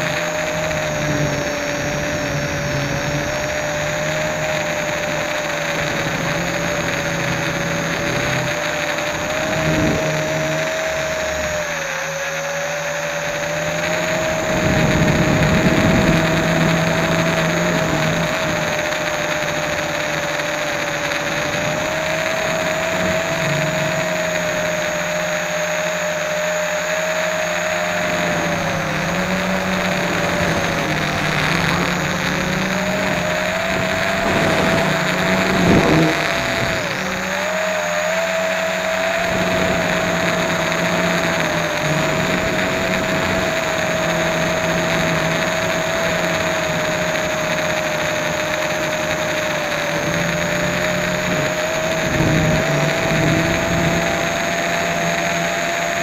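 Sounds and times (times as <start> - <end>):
drone propellers whining: 0.0 - 56.0.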